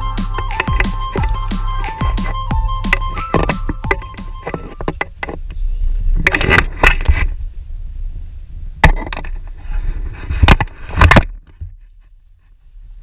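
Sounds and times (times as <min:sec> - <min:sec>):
wind rumbling on microphone: 0:04.4 - 0:13.0.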